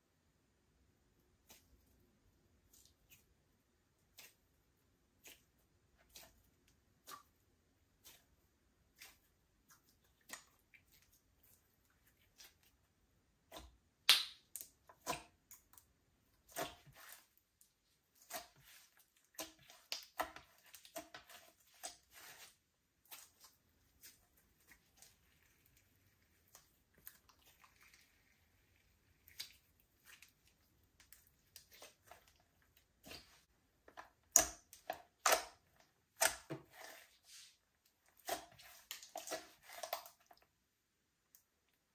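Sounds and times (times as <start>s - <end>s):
slime squishing with clicks and pops: 2.6s - 17.6s, 18.2s - 22.2s, 23.0s - 36.6s.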